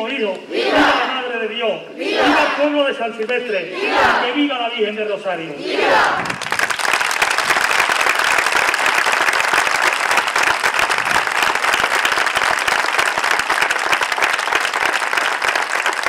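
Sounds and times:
crowd applauding: 6.1 - 16.0.

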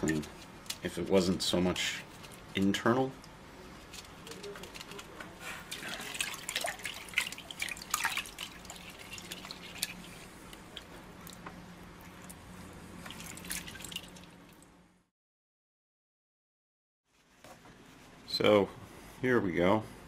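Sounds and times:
water splashing in a plastic bucket: 5.7 - 10.0, 13.0 - 14.4.

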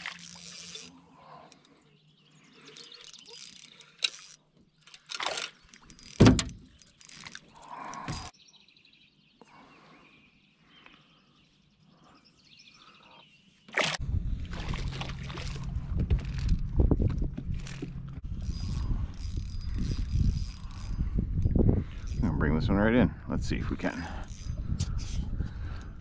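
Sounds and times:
fish splashing: 13.7 - 15.8.

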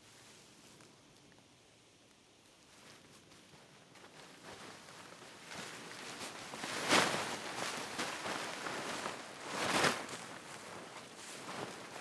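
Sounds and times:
tent fabric rustling and swishing: 2.6 - 12.0.

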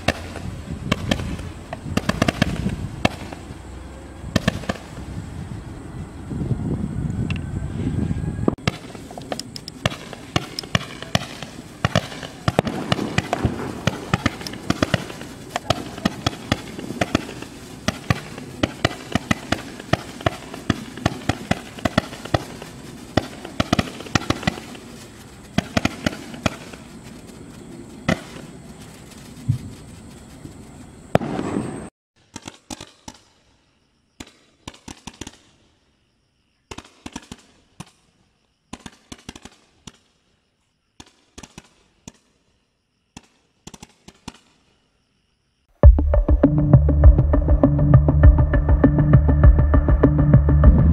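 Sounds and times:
firework pops: 0.0 - 3.5, 4.4 - 5.1, 8.6 - 24.9, 25.5 - 27.0, 31.1 - 33.3, 43.1 - 44.6
low firework rumble: 0.0 - 31.9.

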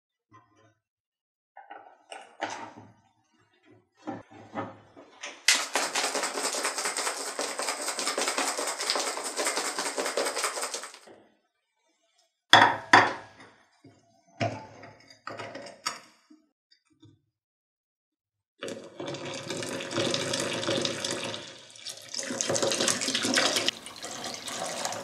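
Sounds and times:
glass jar rattling: 5.6 - 11.0.

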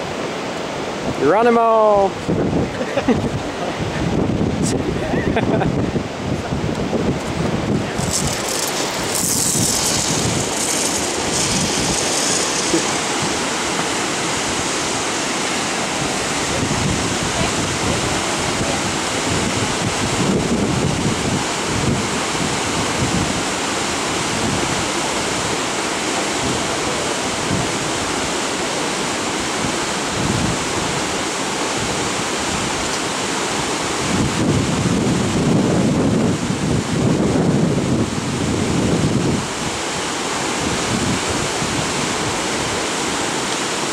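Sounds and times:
wind buffeting microphone: 2.2 - 25.6, 29.4 - 32.9, 34.0 - 39.8, 40.5 - 42.8.

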